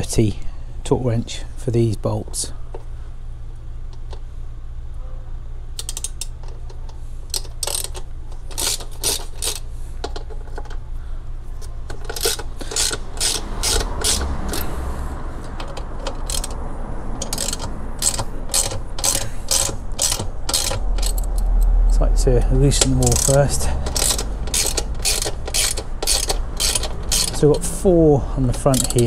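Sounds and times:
low rumble of traffic: 0.0s - 29.0s
ratchet wrench clicking: 5.8s - 6.7s, 7.3s - 10.7s, 11.9s - 14.8s, 15.4s - 16.6s, 17.2s - 27.8s, 28.5s - 29.0s.

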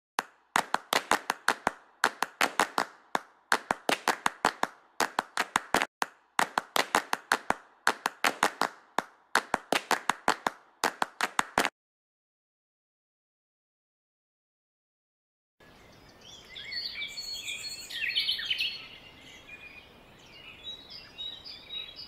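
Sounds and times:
sharp hand claps: 0.2s - 11.7s.

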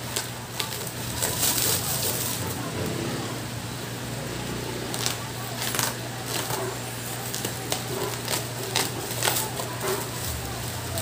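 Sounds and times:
box cutter tearing plastic wrap: 0.0s - 2.6s, 4.9s - 11.0s.

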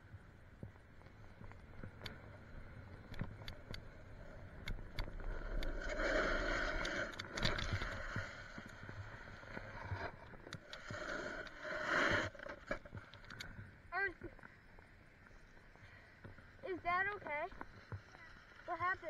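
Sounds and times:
small clicks: 3.0s - 8.8s, 12.5s - 13.6s
skis scraping over snow: 10.9s - 12.6s.

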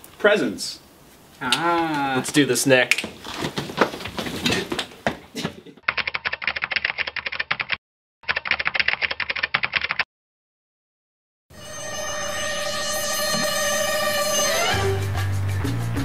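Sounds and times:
voices: 1.4s - 3.0s
clattering movement: 2.9s - 5.8s
rapid typing key clicks: 5.9s - 10.0s.

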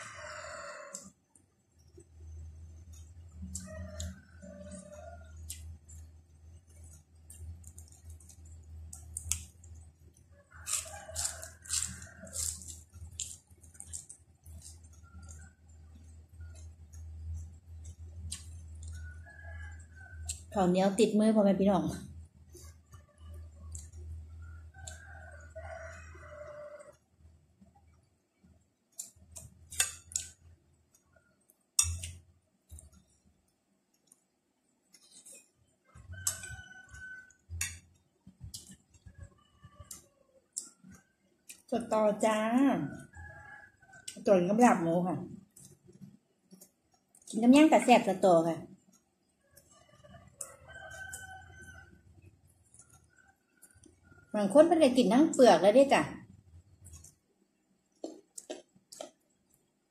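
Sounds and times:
rooster crowing: 0.0s - 1.0s, 10.4s - 12.5s, 24.5s - 27.0s, 35.9s - 37.5s, 49.8s - 52.1s
eating and chewing: 0.0s - 21.0s, 21.9s - 42.2s, 42.8s - 54.6s, 56.0s - 59.9s
food crunching: 0.9s - 20.6s, 28.4s - 41.7s, 48.8s - 54.2s, 56.5s - 59.9s
cabbage leaves tearing and crackling: 10.6s - 14.2s.

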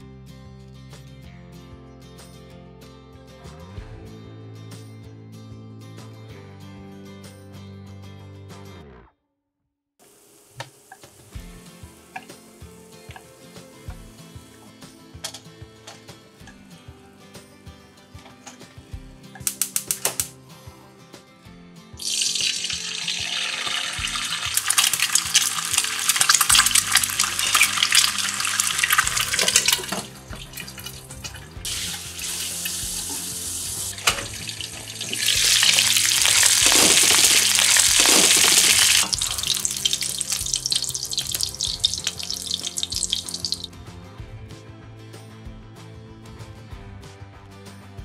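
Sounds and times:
eggs sizzling in frying pan: 10.0s - 14.8s, 22.0s - 43.8s.

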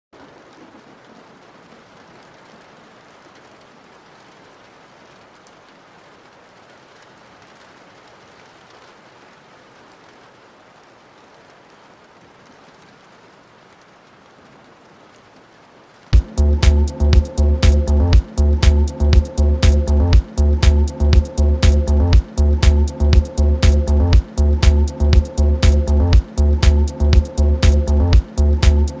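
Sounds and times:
steady rain hiss: 0.2s - 29.0s
hip-hop beat with heavy bass: 16.2s - 29.0s.

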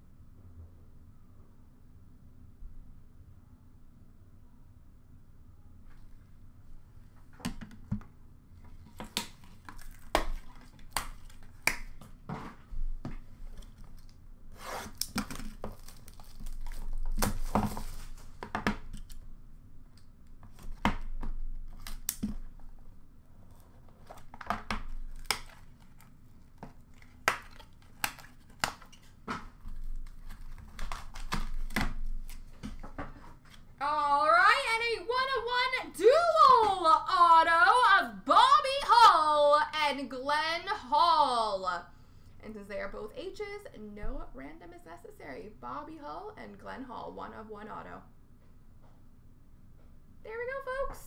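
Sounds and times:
cardboard scraping: 8.7s - 18.5s, 21.7s - 33.8s
cardboard and plastic clicking: 23.5s - 33.7s.

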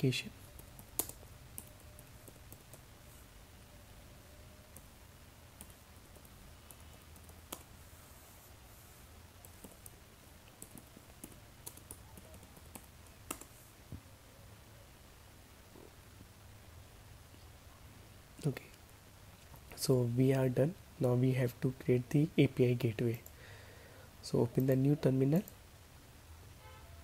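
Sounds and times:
faint low hum: 0.0s - 27.0s
keyboard typing: 0.4s - 2.8s, 5.6s - 7.7s, 9.4s - 13.5s.

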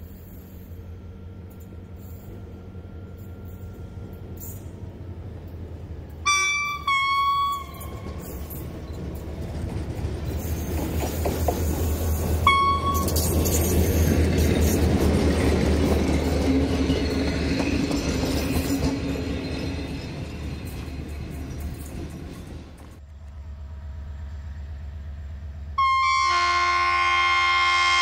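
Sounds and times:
locomotive engine rumble: 0.0s - 28.0s
train running noise: 0.0s - 28.0s
locomotive horn blasts: 6.2s - 8.5s, 12.4s - 13.3s, 25.8s - 28.0s.

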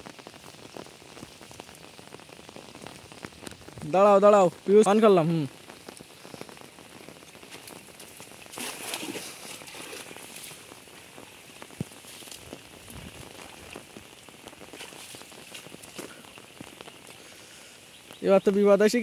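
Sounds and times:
rain pattering on a pond: 0.0s - 19.0s
cast net splashing on water: 7.5s - 17.1s.

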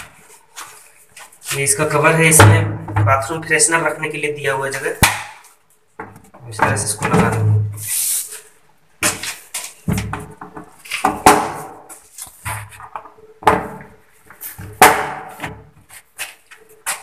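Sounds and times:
plastic knocks and scrapes: 6.0s - 7.8s.

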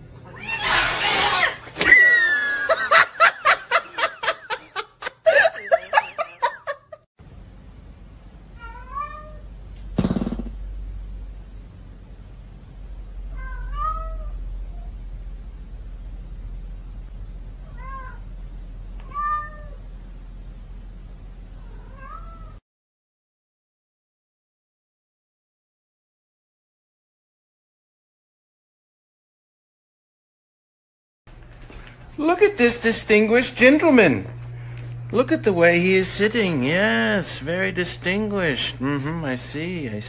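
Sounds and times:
cat meowing: 0.2s - 1.6s, 8.6s - 9.5s, 13.3s - 14.9s, 17.6s - 18.3s, 19.0s - 19.8s, 21.6s - 22.6s
person laughing hard: 1.8s - 7.0s.

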